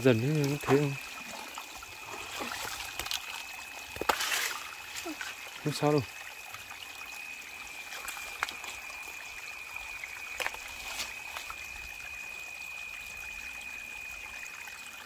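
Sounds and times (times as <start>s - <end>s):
water trickling over rocks: 0.0s - 15.0s
stones knocking together: 3.9s - 5.3s.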